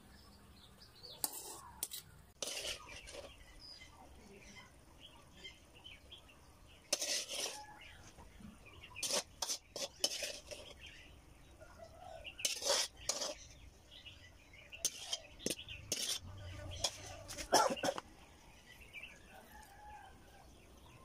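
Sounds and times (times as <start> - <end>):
metal ladle scraping ceramic plate: 1.2 - 3.4, 6.9 - 7.9, 8.9 - 11.0, 12.4 - 13.6, 14.8 - 18.0.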